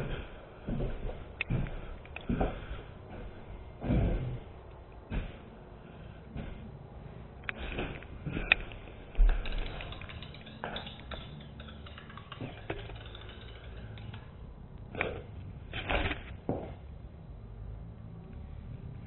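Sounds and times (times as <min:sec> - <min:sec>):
clicks: 0:07.4 - 0:15.2.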